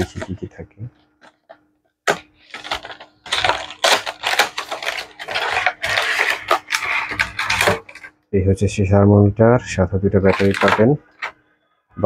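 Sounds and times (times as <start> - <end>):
packaging rustling and scraping: 0.0 - 8.2, 10.1 - 11.4.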